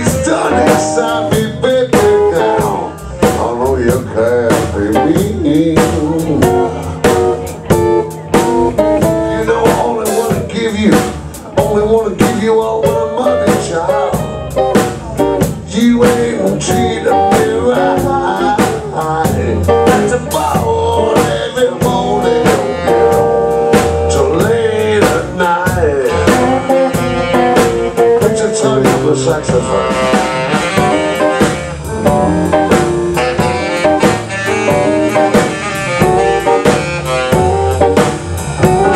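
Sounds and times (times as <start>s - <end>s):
drum kit beat: 0.0s - 38.9s
electric bass: 0.0s - 38.9s
electric guitar: 0.0s - 38.9s
saxophone: 16.7s - 24.6s, 25.8s - 38.9s.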